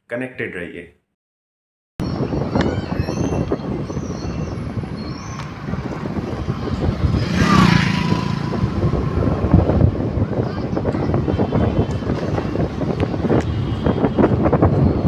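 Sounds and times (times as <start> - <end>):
road rumble: 2.0 - 15.0
vehicle engine: 5.7 - 15.0.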